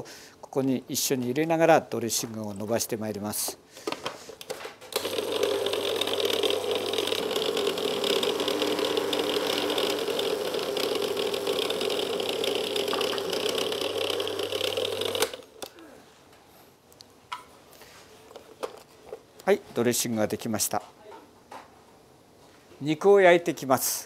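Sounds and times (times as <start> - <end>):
food processor motor running: 5.0 - 15.4.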